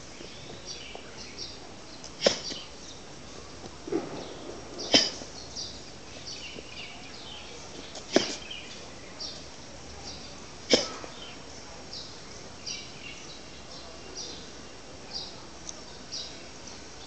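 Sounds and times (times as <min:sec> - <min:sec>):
sharp slaps of strikes: 0:02.2 - 0:02.6, 0:08.1 - 0:08.4, 0:10.7 - 0:11.1.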